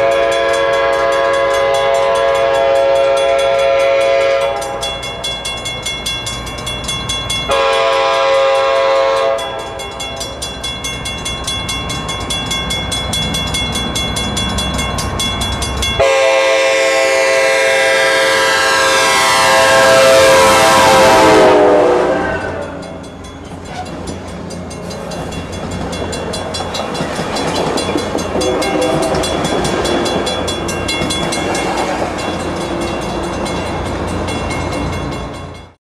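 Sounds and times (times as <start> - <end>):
locomotive air horn chord: 0.0 - 5.0, 7.5 - 10.0, 16.0 - 23.0, 28.4 - 29.4
crossing bell dinging: 0.0 - 35.8
train wheels on rails: 0.0 - 35.8.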